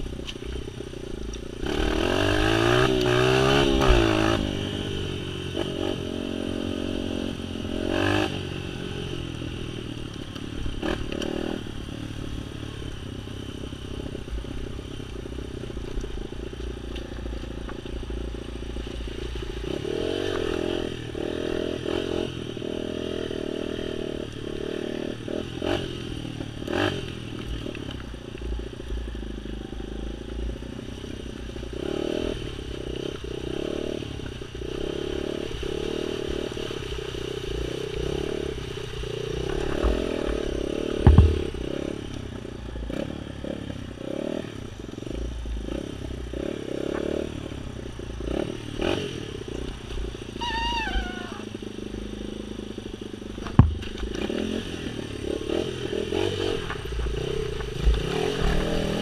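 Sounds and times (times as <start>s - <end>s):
motorcycle engine revving: 0.0s - 59.0s
knocks and rattles: 41.0s - 41.6s.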